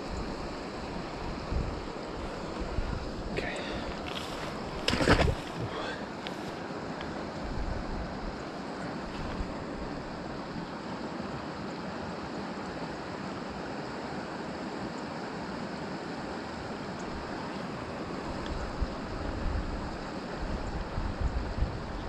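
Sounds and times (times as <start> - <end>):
wind gusting on microphone: 0.0 - 8.4, 18.1 - 22.0
stream water running: 0.0 - 22.0.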